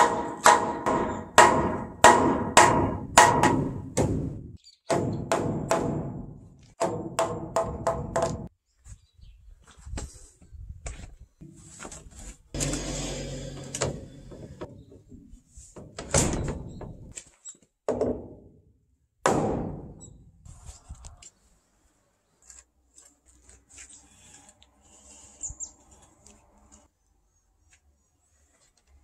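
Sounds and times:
wooden mallet knocking timber: 0.0s - 4.3s, 4.9s - 8.5s, 17.9s - 18.4s, 19.3s - 19.9s.

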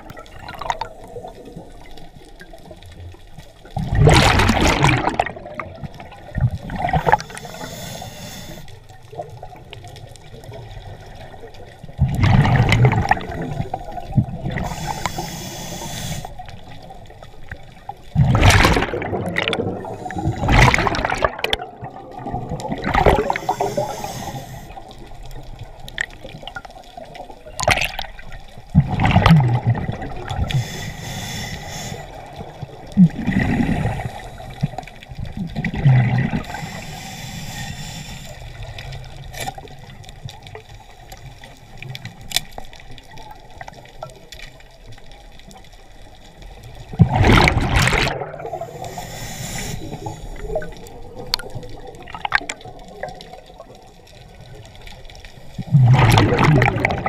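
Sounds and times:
exhaust bubbles rushing: 3.8s - 5.9s, 12.0s - 14.6s, 18.2s - 23.4s, 28.7s - 30.5s, 33.0s - 34.0s, 47.0s - 48.6s, 55.6s - 57.0s
regulator inhale hiss: 7.1s - 9.0s, 14.5s - 16.8s, 19.8s - 20.5s, 23.2s - 25.1s, 30.4s - 32.4s, 33.5s - 35.1s, 36.4s - 39.6s, 48.4s - 50.9s.

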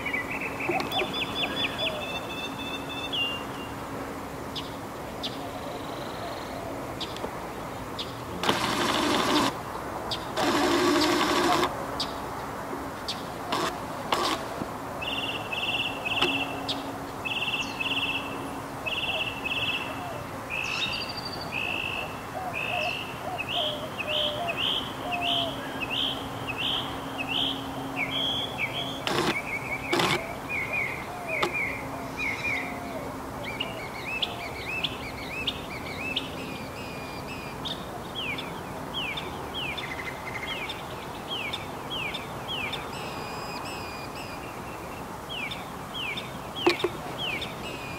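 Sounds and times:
bird singing repeated chirps: 0.0s - 3.7s, 15.0s - 32.7s, 33.5s - 47.9s
sharp clicks: 8.4s - 9.6s, 10.4s - 11.7s, 13.5s - 14.6s, 29.0s - 30.3s, 31.4s - 31.6s.

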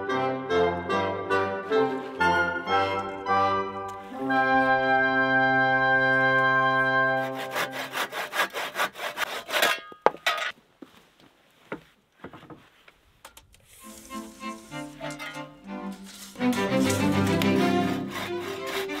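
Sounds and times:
background music chord: 0.0s - 7.6s, 13.8s - 19.0s
hand saw cutting wood: 1.7s - 10.0s, 13.6s - 19.0s.

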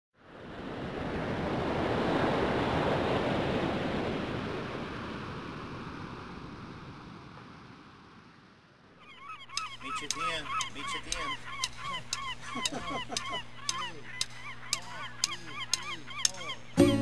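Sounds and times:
ocean surf breaking: 0.2s - 9.0s.

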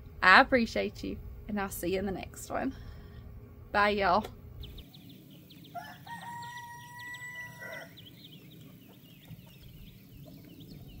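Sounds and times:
rooster crowing: 5.7s - 8.1s.

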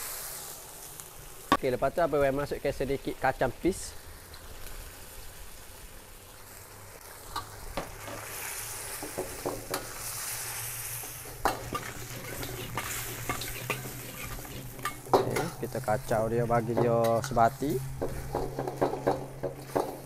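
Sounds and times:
food sizzling in a wok: 0.0s - 20.0s
spatula stirring and scraping: 7.4s - 20.0s
spatula clacking against wok: 11.3s - 15.6s, 18.0s - 20.0s.

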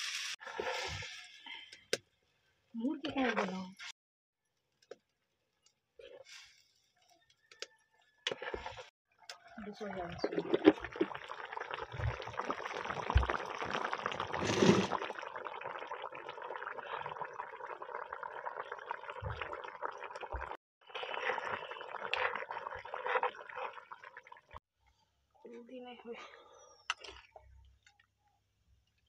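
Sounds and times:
curry bubbling and sizzling: 8.3s - 24.6s.

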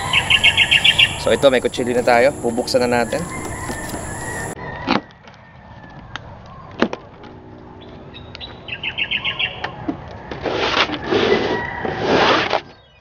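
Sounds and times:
small bird chirping: 0.0s - 4.6s.

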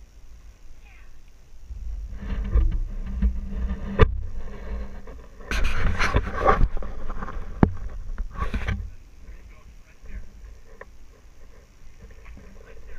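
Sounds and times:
engine rumbling low: 1.4s - 5.4s
scraping and crunching: 1.7s - 12.9s.

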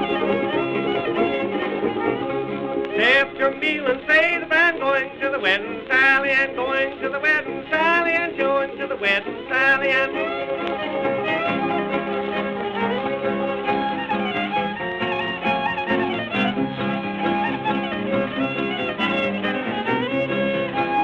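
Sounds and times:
fiddle playing: 0.0s - 21.0s
man singing: 3.0s - 10.3s.

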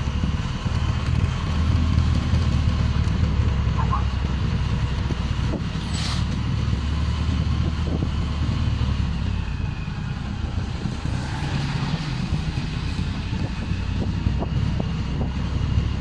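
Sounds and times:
motorcycle engine running: 0.0s - 11.1s
road noise: 0.0s - 16.0s.

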